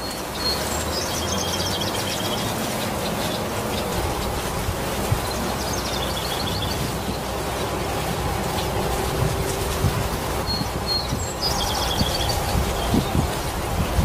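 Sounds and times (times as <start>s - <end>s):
bird chirping trill: 0.0s - 4.3s, 5.2s - 7.2s, 10.4s - 13.1s
rain falling on leaves: 0.0s - 14.0s.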